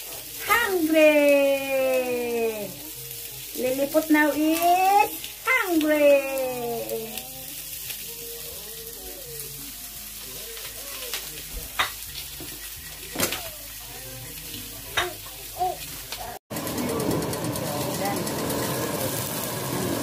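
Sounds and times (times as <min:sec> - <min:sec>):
fish sizzling in a frying pan: 0:00.0 - 0:20.0.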